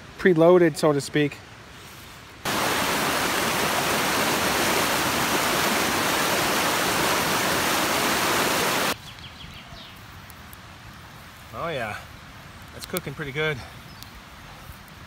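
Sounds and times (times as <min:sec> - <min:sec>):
stream rushing over rocks: 0:02.4 - 0:09.0.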